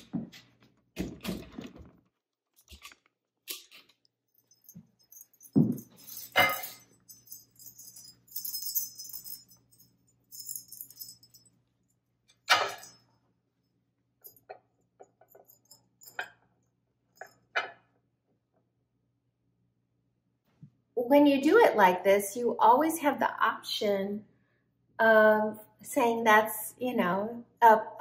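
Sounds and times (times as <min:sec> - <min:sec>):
small metal bells jingling: 0:04.3 - 0:13.1, 0:15.2 - 0:16.4.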